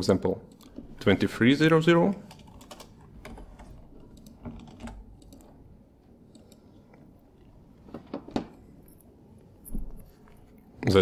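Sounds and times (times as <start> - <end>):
sharp clicks: 4.1 - 5.5.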